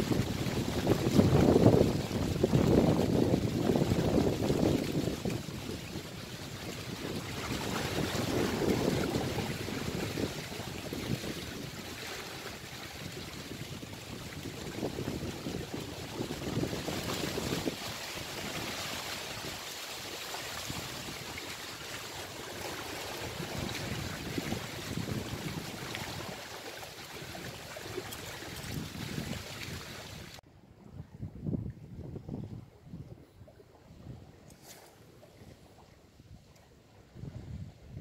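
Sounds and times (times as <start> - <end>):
wind buffeting microphone: 0.0 - 19.6, 22.6 - 34.5, 35.3 - 38.0
small waves washing against rocks: 0.0 - 30.4.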